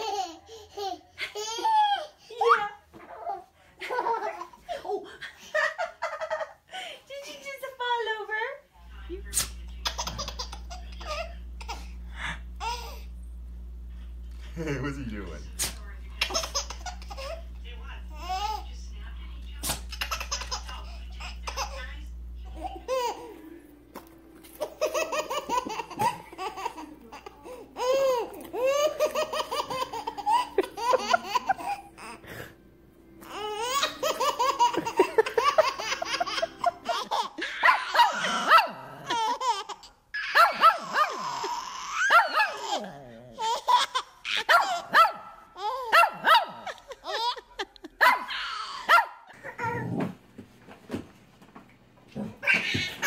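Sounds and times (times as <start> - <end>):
babies giggling: 0.0 - 6.6, 9.8 - 12.0, 16.2 - 17.5, 19.8 - 23.6, 24.6 - 32.2, 33.3 - 44.9, 45.6 - 50.0, 52.2 - 53.0
small dog barking: 37.6 - 38.9, 40.2 - 41.2, 42.0 - 42.8, 44.4 - 46.7, 48.0 - 49.2.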